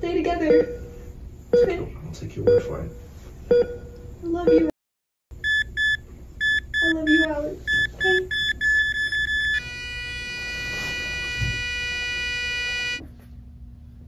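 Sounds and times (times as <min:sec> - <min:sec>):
heart monitor beeping: 0:00.5 - 0:01.0, 0:02.4 - 0:04.7, 0:05.4 - 0:13.0
heart monitor flatline tone: 0:05.4 - 0:13.0.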